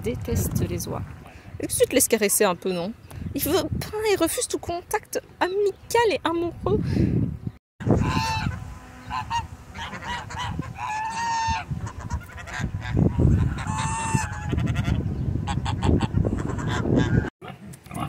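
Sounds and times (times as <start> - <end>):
geese honking: 7.8 - 17.3.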